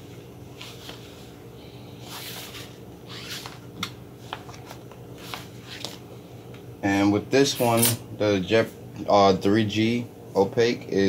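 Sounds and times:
steady low hum: 0.0 - 11.0
paper sheet rustling and sliding: 4.2 - 6.0.

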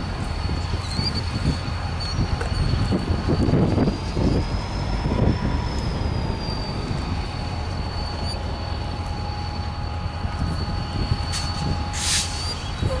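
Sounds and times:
diesel locomotive engine rumble: 0.0 - 13.0.

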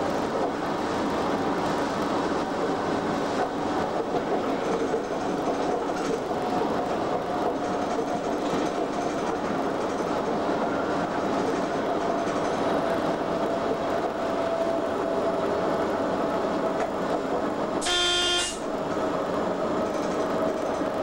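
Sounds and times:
rumble of train wheels on rail: 0.0 - 21.0
train horn toot: 17.8 - 18.7.

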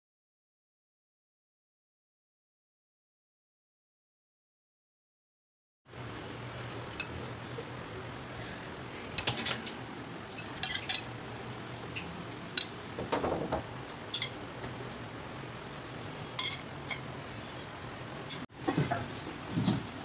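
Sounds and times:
metal spoon clinking on glass: 10.4 - 11.1, 14.1 - 14.4, 16.4 - 17.0.

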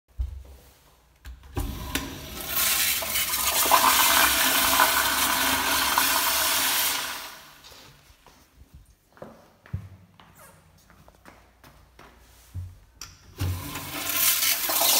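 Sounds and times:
toilet water rushing: 1.6 - 7.6, 13.4 - 14.9.

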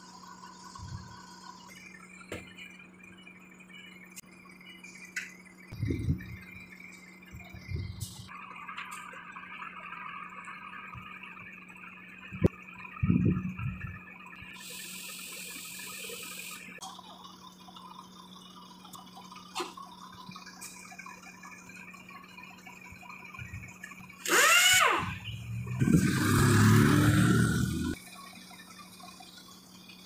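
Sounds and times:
compressed air hissing: 14.6 - 16.7
short rising and falling squeal: 24.2 - 28.0.

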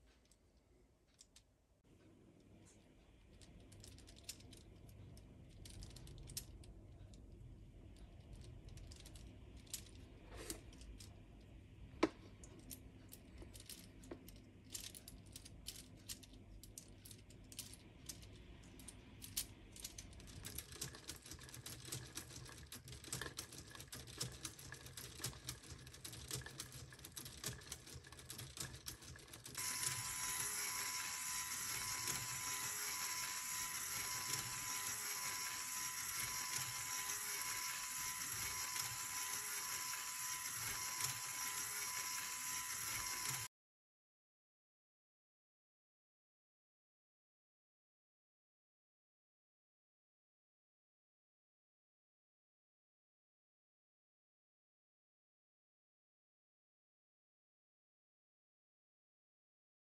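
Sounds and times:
plastic parts clicking and rattling: 3.3 - 7.2, 8.2 - 11.2, 12.0 - 43.5.

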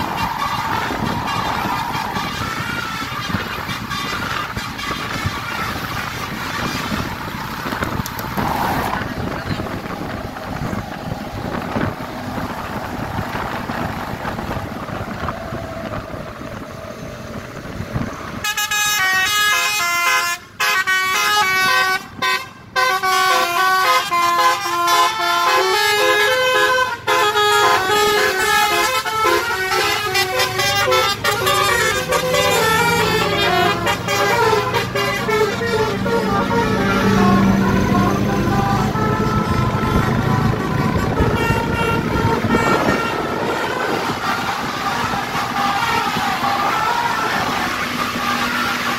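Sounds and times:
wind on microphone: 0.0 - 18.5, 30.0 - 48.9
multi-tone bus horn melody: 0.0 - 48.9.

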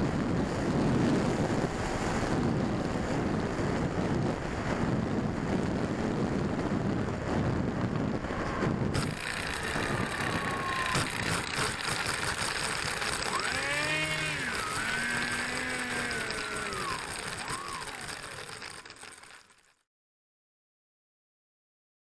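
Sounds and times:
wind rushing over microphone: 0.0 - 18.4
electric motor whine: 8.4 - 19.6.

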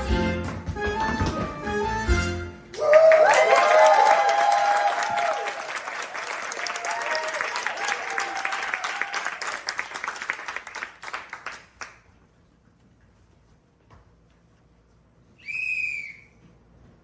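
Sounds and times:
audience applauding: 2.7 - 12.0.

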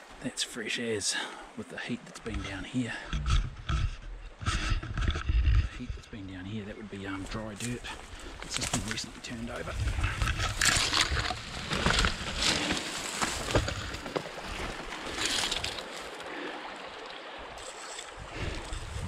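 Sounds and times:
footsteps: 7.2 - 16.2
dry grass rustling and crackling: 7.2 - 19.0.

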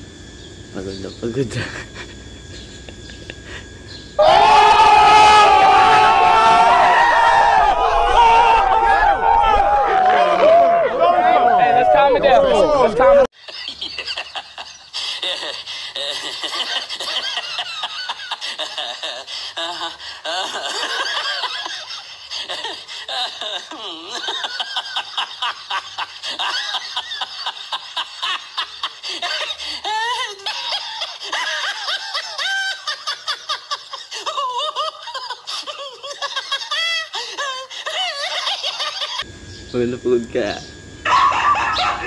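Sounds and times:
person laughing hysterically: 1.6 - 3.7, 13.4 - 39.3.

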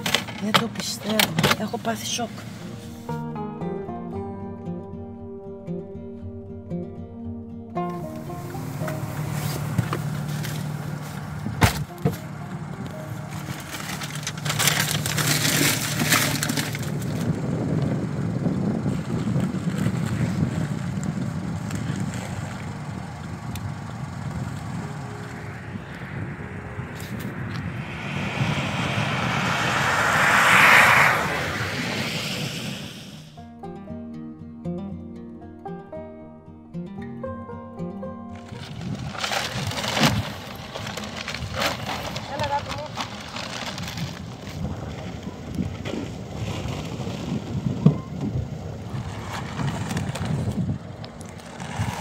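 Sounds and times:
truck passing on wet road: 8.0 - 33.4
steady low hum: 23.6 - 33.3.

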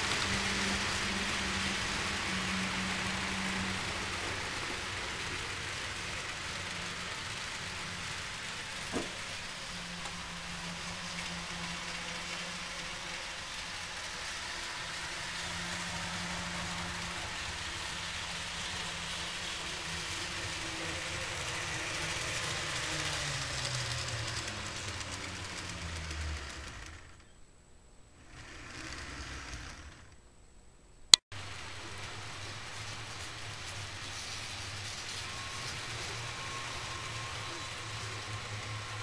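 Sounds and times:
small electric motor whirring: 0.2 - 27.3, 28.2 - 30.2
steady hiss: 26.4 - 39.0.

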